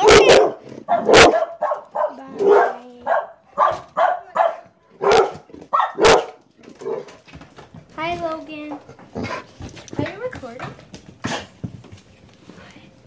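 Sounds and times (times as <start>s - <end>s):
dog barking: 0.0s - 7.2s.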